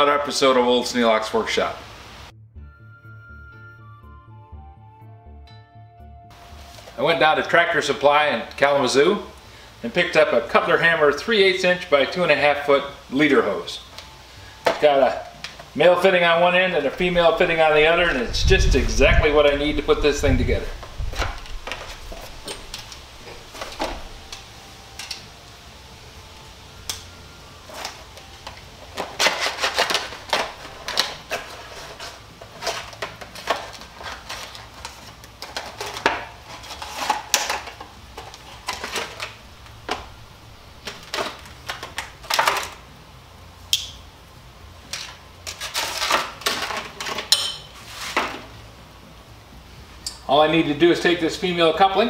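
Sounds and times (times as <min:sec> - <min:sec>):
tape being pulled off roll: 0:26.8 - 0:40.2.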